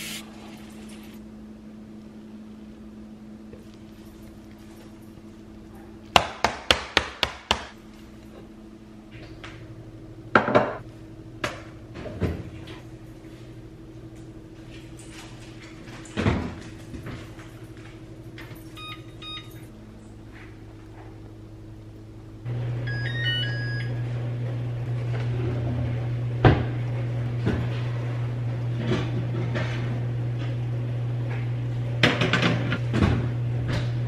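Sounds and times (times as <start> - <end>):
low appliance hum: 0.0 - 34.0
kitchen clunks and thuds: 10.3 - 10.8, 16.1 - 17.3, 32.0 - 34.0
electronic appliance beeps: 18.7 - 19.7, 22.6 - 24.2.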